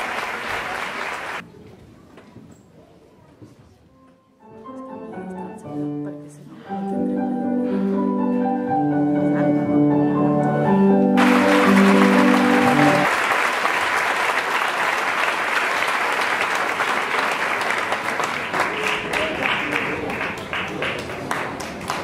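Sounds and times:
audience applause: 0.0s - 1.4s, 11.2s - 22.0s.

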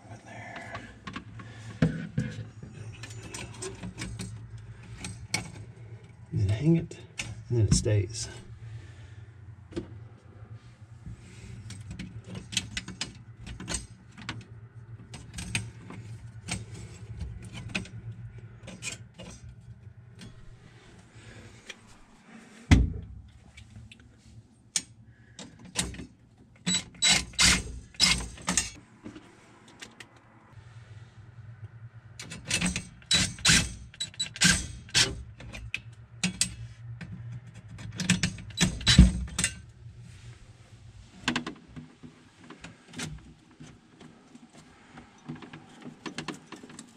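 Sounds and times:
screws and parts clattering: 1.0s - 6.2s, 11.6s - 18.0s, 18.6s - 19.6s, 24.8s - 28.8s, 32.2s - 36.6s, 37.3s - 39.7s.

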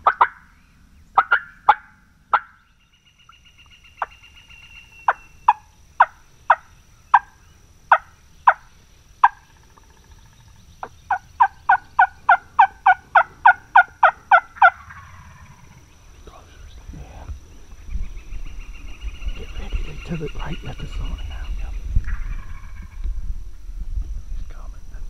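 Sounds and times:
turkey clucking and cutting: 10.8s - 15.2s.

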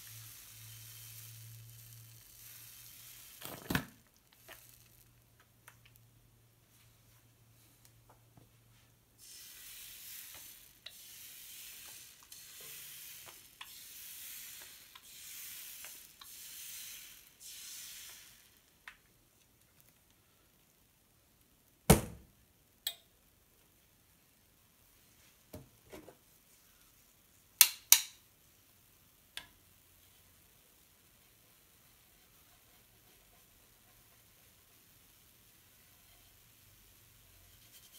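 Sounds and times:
batter sizzling on a griddle: 0.0s - 6.3s, 9.2s - 19.0s, 26.3s - 37.9s.

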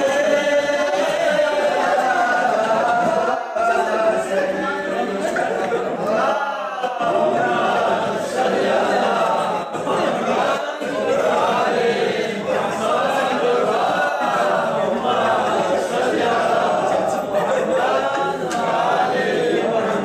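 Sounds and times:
men chanting together: 0.0s - 20.0s.

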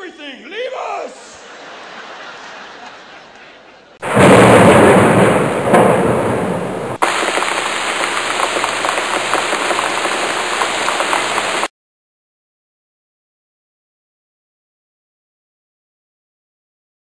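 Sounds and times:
audience laughing and applauding: 1.4s - 4.0s
steady ticking patter: 7.0s - 11.7s.

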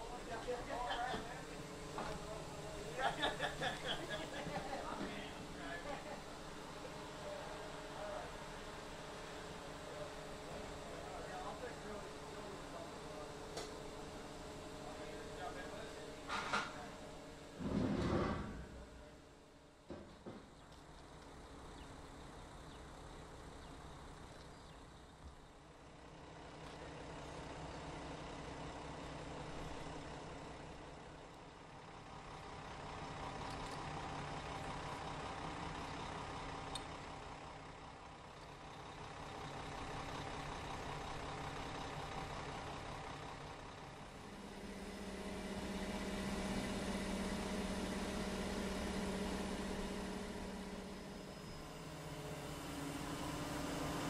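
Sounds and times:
crane truck engine running: 0.0s - 54.0s.

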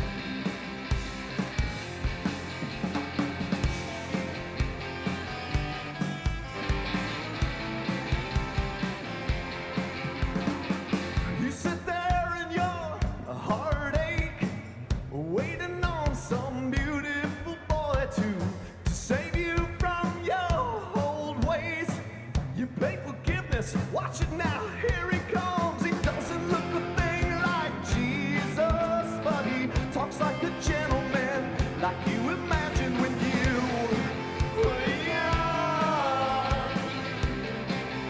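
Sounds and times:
live rock band playing: 0.0s - 38.0s
harmonica wailing: 3.8s - 9.8s.

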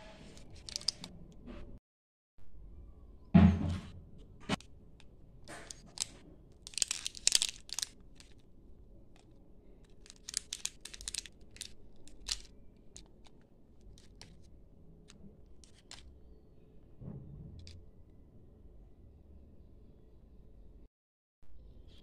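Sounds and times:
plastic candy wrappers crinkling: 0.4s - 1.1s, 5.5s - 8.5s, 9.1s - 14.5s, 15.6s - 16.1s.

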